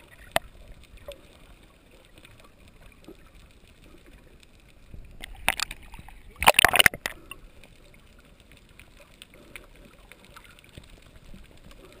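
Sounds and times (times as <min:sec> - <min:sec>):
faint clicks and crackle: 0:00.0 - 0:12.0
seawater splashing against camera: 0:05.1 - 0:07.4.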